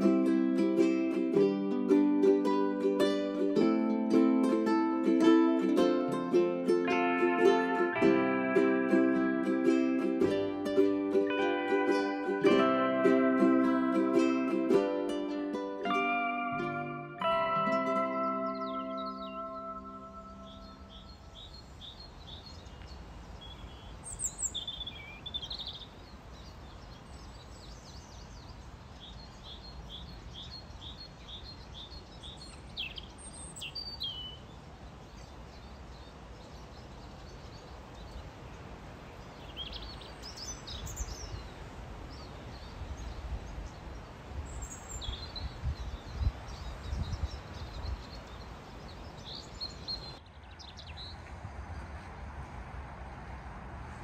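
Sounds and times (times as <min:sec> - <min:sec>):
small birds chirping: 0:18.1 - 0:52.1
wind buffeting microphone: 0:37.9 - 0:54.0.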